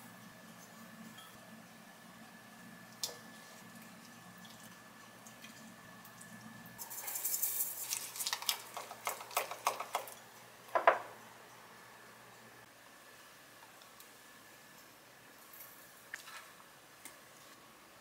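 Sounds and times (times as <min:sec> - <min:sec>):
seeds pattering into a glass mug: 0:06.8 - 0:09.8.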